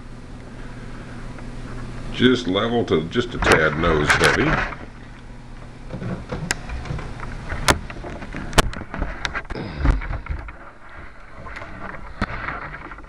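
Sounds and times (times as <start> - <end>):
sharp clicks and knocks: 5.9 - 10.6.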